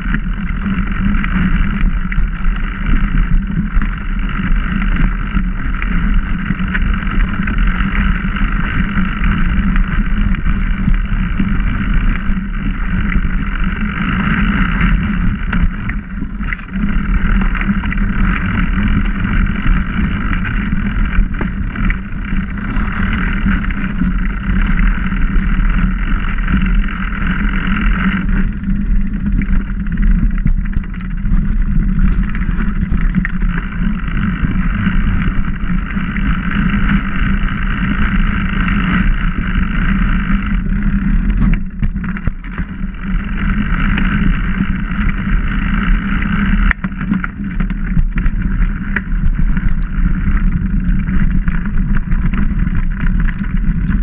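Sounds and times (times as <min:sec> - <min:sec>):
bike tyres rumbling on dirt trail: 0:00.0 - 0:54.0
bike knocks and rattles: 0:41.2 - 0:45.2.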